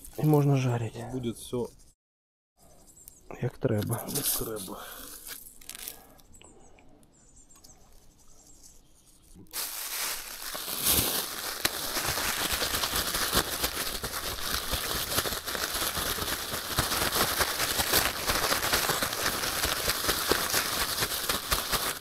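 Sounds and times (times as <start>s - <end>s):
plastic bag crinkling and rustling: 4.1s - 6.0s, 9.5s - 22.0s.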